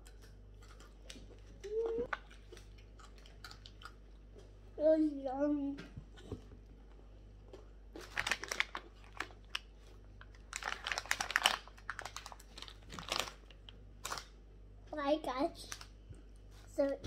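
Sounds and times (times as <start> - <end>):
snack packet crinkling: 0.1 - 4.0, 7.9 - 14.4, 15.6 - 16.0.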